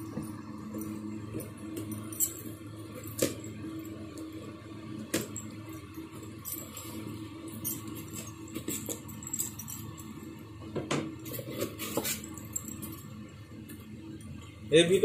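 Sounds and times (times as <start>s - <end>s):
steady low hum: 0.0s - 15.0s
metal chain bracelet jingling: 1.9s - 3.4s, 5.2s - 10.2s, 11.2s - 13.1s.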